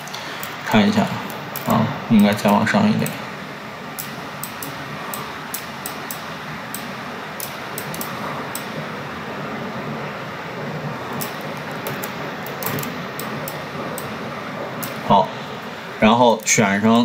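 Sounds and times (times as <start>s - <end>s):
background hiss: 0.0s - 17.0s
computer mouse clicks: 1.3s - 3.2s, 4.0s - 8.7s, 11.2s - 14.1s.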